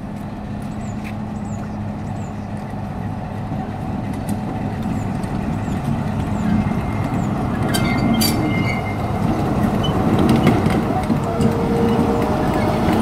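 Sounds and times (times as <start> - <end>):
diesel locomotive engine drone: 0.0 - 13.0
sharp high clicks with squeal: 7.6 - 9.2.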